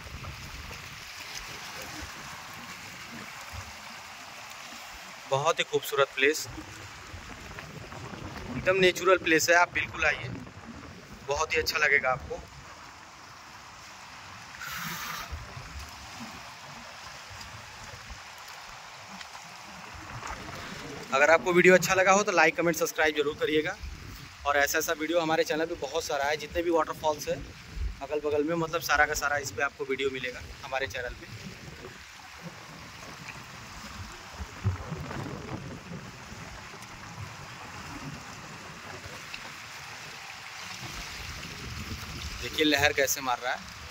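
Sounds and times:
wind buffeting microphone: 0.0s - 3.9s, 6.4s - 14.4s, 15.2s - 43.0s
waves lapping on rocky shore: 0.0s - 43.9s
brief hiss: 14.6s - 15.4s.

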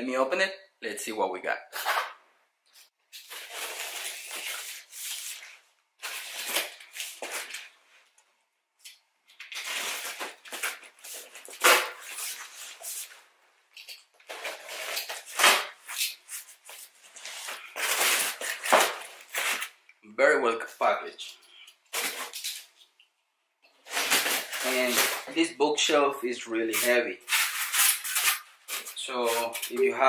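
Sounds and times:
cardboard tearing and rustling: 9.4s - 13.1s, 14.3s - 19.8s, 23.9s - 25.3s, 26.8s - 29.9s
knife slicing packing tape: 26.8s - 29.7s.

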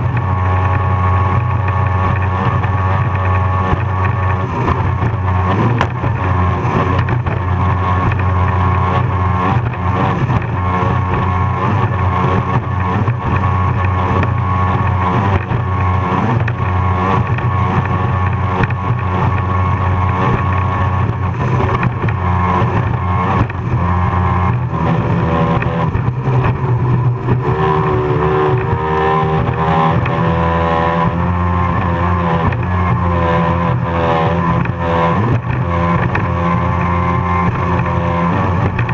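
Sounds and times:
powerboat engine at high revs: 0.0s - 38.9s.

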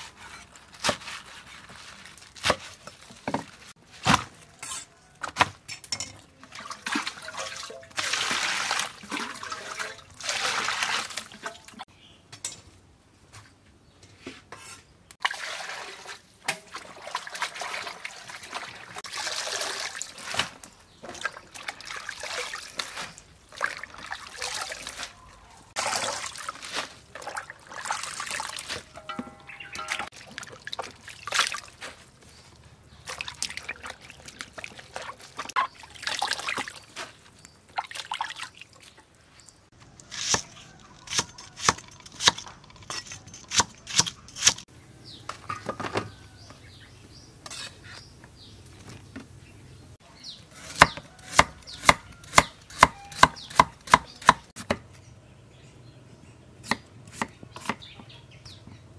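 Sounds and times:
water splashing in basin: 6.3s - 11.8s, 15.2s - 25.2s, 25.8s - 31.8s, 33.0s - 37.0s, 37.7s - 39.0s.

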